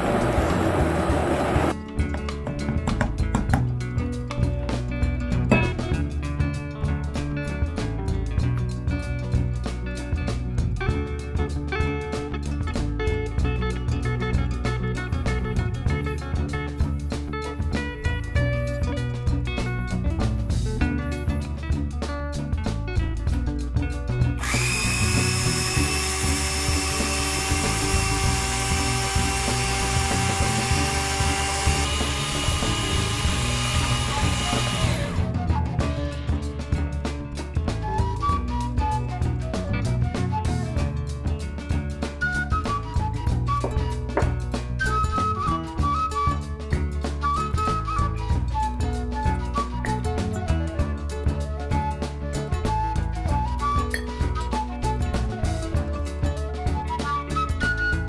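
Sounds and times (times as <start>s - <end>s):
electric hand mixer whirring: 0.0s - 1.8s, 24.4s - 35.4s
background music with a beat: 1.7s - 58.0s.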